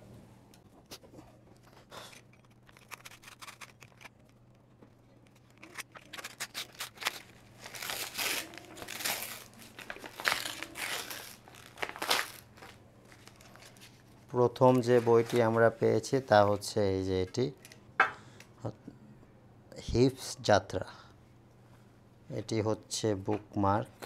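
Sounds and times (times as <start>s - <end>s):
paper being torn and crinkled: 1.9s - 4.3s, 5.3s - 14.0s.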